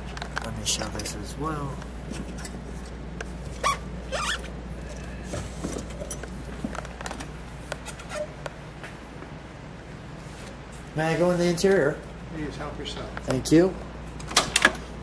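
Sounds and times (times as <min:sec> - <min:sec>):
objects rustling and scraping: 0:00.0 - 0:09.1
steady low hum: 0:00.0 - 0:15.0.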